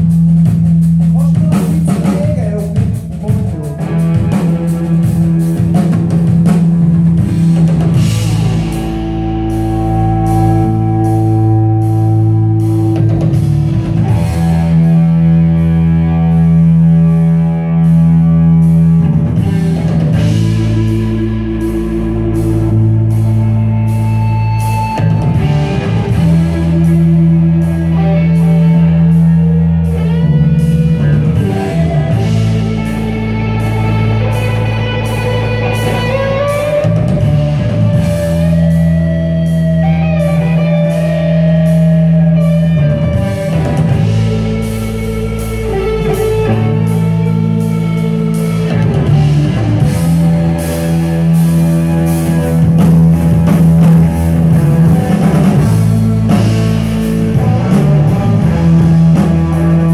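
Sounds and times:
drum fill: 0.0 - 16.6
rock band playing live: 0.0 - 59.9.

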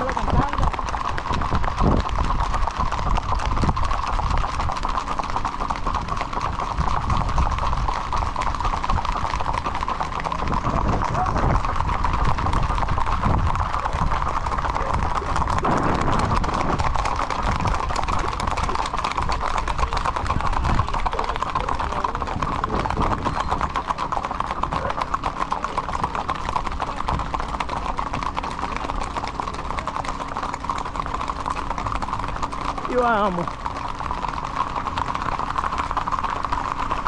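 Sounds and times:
horse hooves clip-clopping on asphalt: 0.0 - 37.0.

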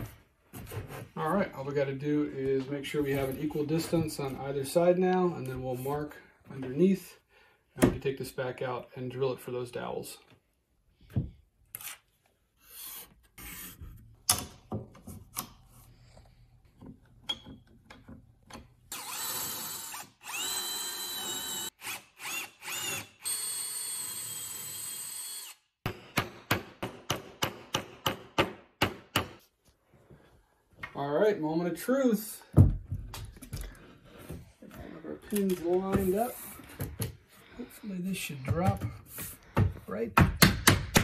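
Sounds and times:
hand drill whining: 18.9 - 25.7.

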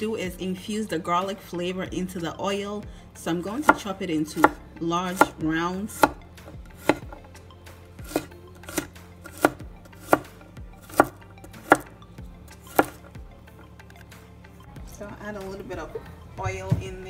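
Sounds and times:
knife chopping on wooden board: 3.6 - 5.4, 6.0 - 7.4, 8.0 - 11.9, 12.6 - 13.1.

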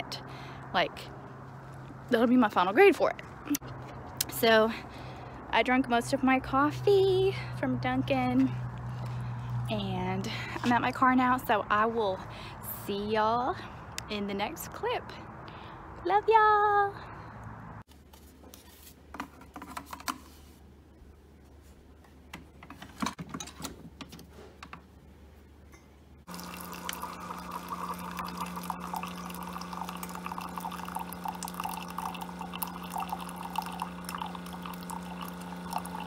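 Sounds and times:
coffee trickling into mug: 26.3 - 36.0
pump hum: 26.3 - 36.0.

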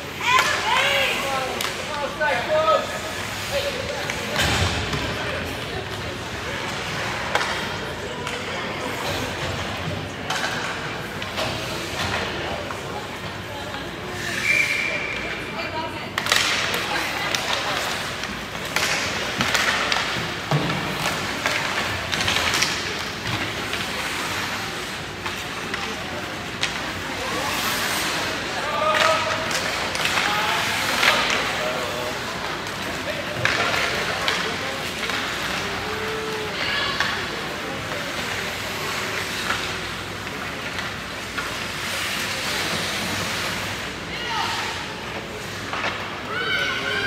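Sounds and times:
hockey sticks clacking: 0.0 - 47.0
skate blades scraping ice: 16.7 - 46.0.

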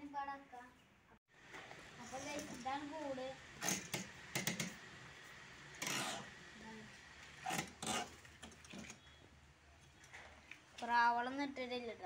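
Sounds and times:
wooden scrape: 5.8 - 6.3, 7.4 - 8.9.

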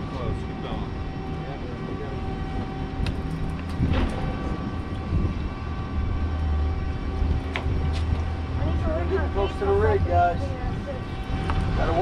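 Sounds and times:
outboard motors droning: 0.0 - 12.0.

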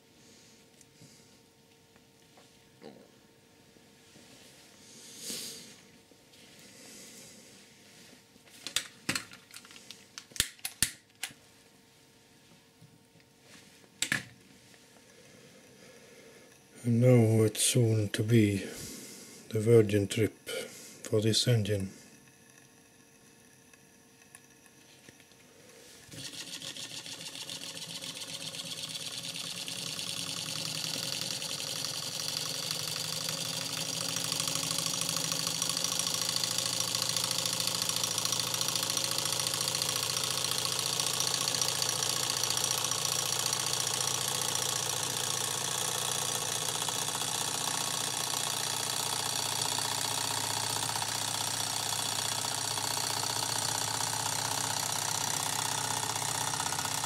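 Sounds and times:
small engine mechanism clattering: 26.0 - 57.0.

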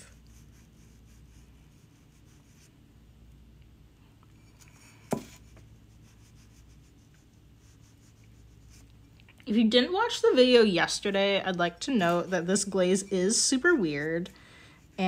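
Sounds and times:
paintbrush scratching and dabbing: 0.0 - 2.7, 4.6 - 9.0, 11.9 - 15.0.

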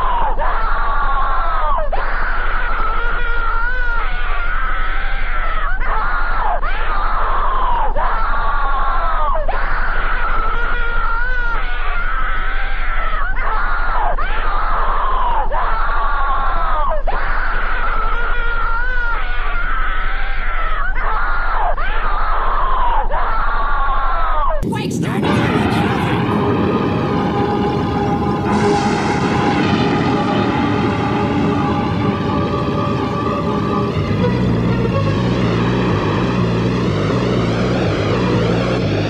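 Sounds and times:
steady low hum: 24.6 - 39.0.

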